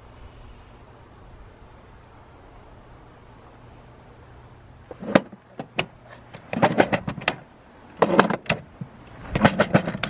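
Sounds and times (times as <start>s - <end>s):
plastic drawers sliding and clacking: 4.9s - 7.4s, 8.0s - 10.0s.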